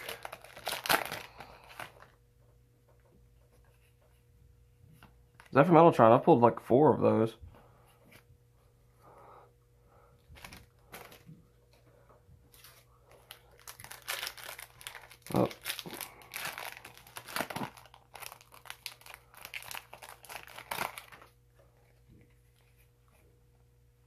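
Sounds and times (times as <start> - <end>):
foil wrapper crinkling: 0.0 - 2.2, 10.4 - 11.3, 12.5 - 21.4.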